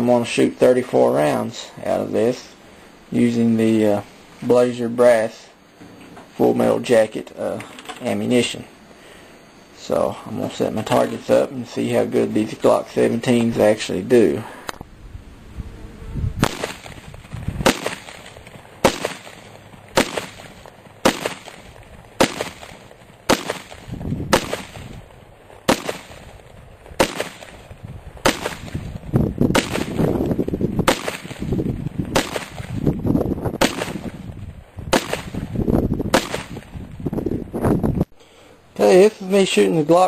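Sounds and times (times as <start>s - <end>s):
wind buffeting microphone: 14.8s - 18.9s, 23.7s - 25.5s, 26.1s - 38.2s
pistol shots: 16.4s - 17.0s, 17.6s - 25.0s, 25.7s - 26.3s, 27.0s - 27.6s, 28.2s - 28.9s, 29.5s - 30.1s, 30.8s - 31.5s, 32.1s - 32.7s, 33.6s - 34.2s, 34.9s - 35.5s, 36.1s - 36.7s.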